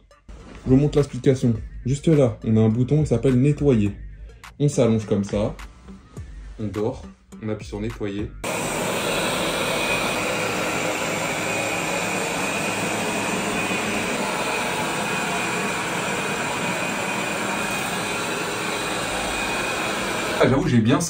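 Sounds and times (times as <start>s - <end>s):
robot vacuum whirring: 8.4s - 20.5s.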